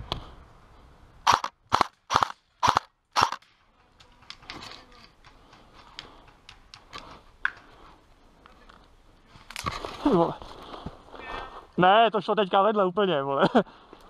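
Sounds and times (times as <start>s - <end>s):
airsoft rifle shots: 1.3s - 3.4s.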